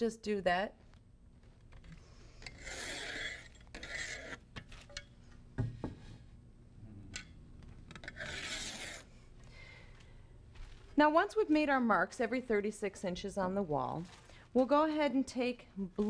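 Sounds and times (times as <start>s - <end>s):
pencil scratching on wall: 2.5s - 4.4s, 8.0s - 9.1s.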